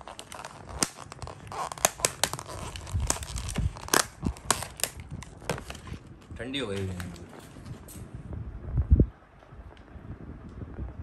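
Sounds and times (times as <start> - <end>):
plastic lid crackling: 0.0 - 7.6
food box rustling: 0.0 - 7.9.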